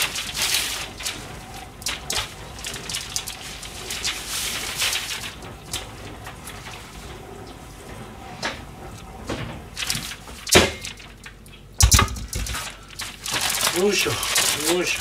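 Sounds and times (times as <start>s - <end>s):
newspaper rustling and crinkling: 0.0s - 7.0s, 12.4s - 15.0s.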